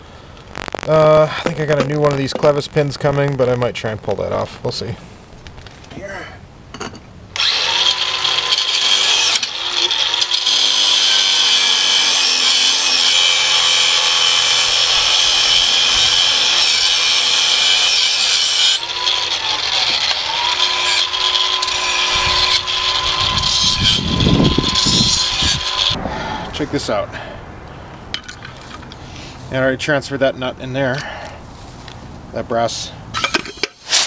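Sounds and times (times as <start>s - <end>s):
angle grinder cutting metal: 7.4s - 26.0s, 33.6s - 34.0s.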